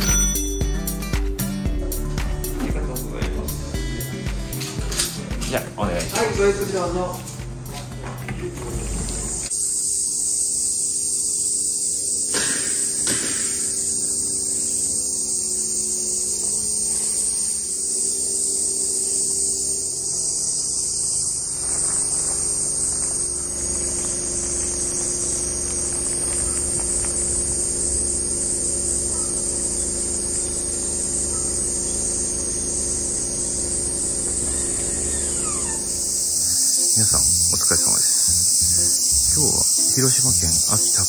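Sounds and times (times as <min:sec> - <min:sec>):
cicadas chorus: 0:00.0 - 0:41.0
car engine humming: 0:11.2 - 0:41.0.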